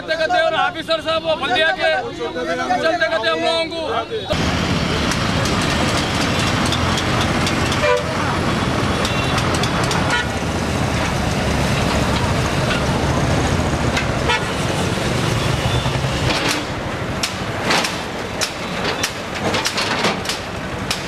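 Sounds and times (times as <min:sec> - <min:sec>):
diesel engine under load: 0:04.3 - 0:21.0.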